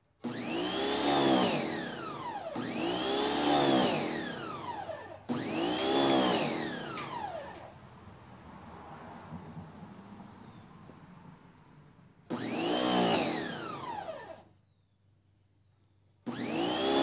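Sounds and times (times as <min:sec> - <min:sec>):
pressure washer pump running: 0:00.2 - 0:07.6, 0:12.3 - 0:14.4, 0:16.3 - 0:17.0.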